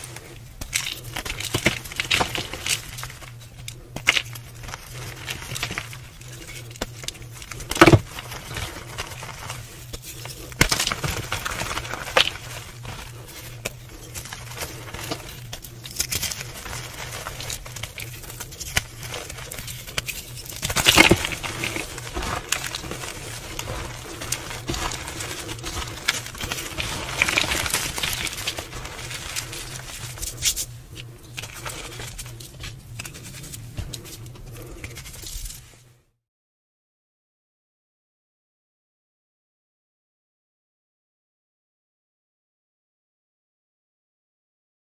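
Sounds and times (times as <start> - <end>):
chalk crunching and crackling: 0.0 - 35.8
steady low hum: 0.0 - 36.1.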